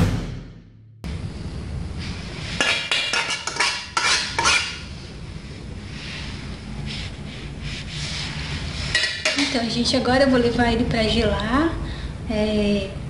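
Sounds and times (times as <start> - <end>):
spoon scraping glass bowl: 2.6 - 4.9.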